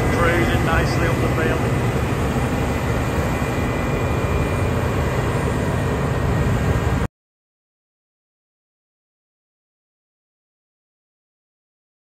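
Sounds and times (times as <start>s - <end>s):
combine harvester drone: 0.0s - 7.1s.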